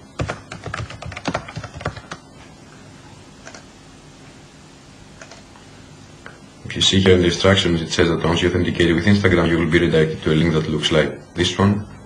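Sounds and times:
computer keyboard keystrokes: 0:00.2 - 0:02.2, 0:03.4 - 0:03.6.

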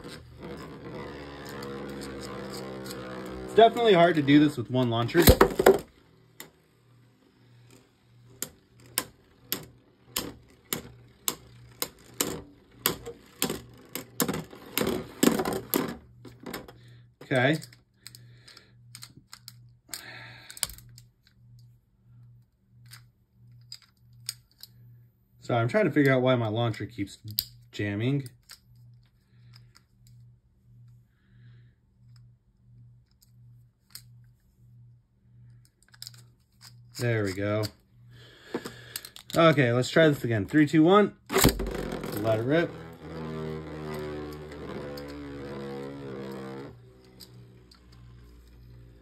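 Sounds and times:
spinning tops clacking together: 0:00.0 - 0:06.7, 0:07.5 - 0:16.0, 0:41.3 - 0:49.0
plastic toy launcher clicks: 0:05.1 - 0:06.5
low pulsing hum: 0:37.7 - 0:49.0.

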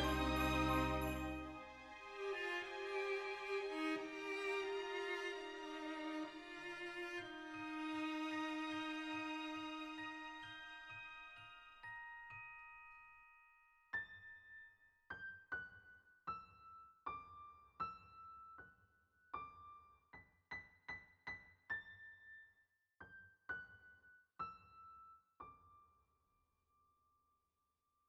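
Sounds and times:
slow piano melody: 0:00.0 - 0:01.8.

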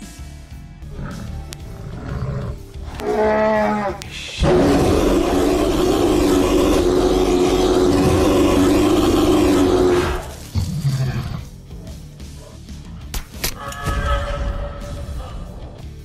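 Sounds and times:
large animal roaring: 0:00.9 - 0:11.6.

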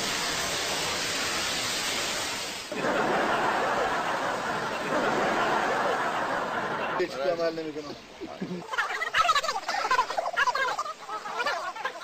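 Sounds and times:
steady hiss: 0:00.0 - 0:12.0
indistinct chattering voices: 0:02.7 - 0:12.0.

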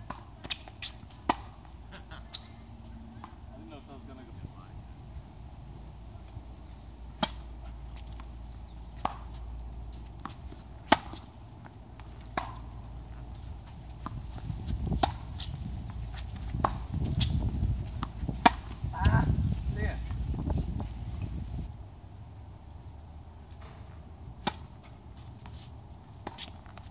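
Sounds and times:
tennis ball hits and bounces: 0:00.0 - 0:01.7, 0:07.1 - 0:17.4, 0:18.0 - 0:19.2, 0:23.6 - 0:25.0, 0:26.2 - 0:26.9
insects droning: 0:00.0 - 0:26.9.

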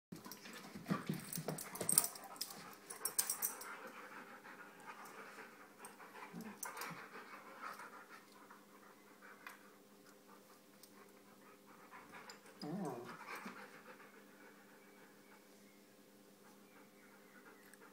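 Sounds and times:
dogs scuffling: 0:00.2 - 0:03.7
dogs panting: 0:00.2 - 0:15.5, 0:16.3 - 0:17.9.

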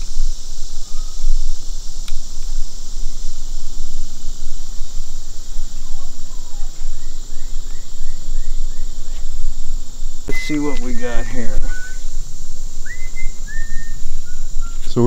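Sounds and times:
insect chorus: 0:00.0 - 0:15.0
bird chirping: 0:00.7 - 0:01.6, 0:05.7 - 0:09.6, 0:10.3 - 0:15.0.

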